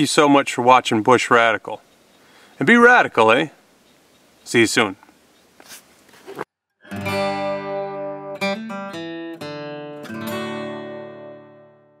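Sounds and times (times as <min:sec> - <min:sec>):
acoustic guitar strumming: 0:06.8 - 0:12.0.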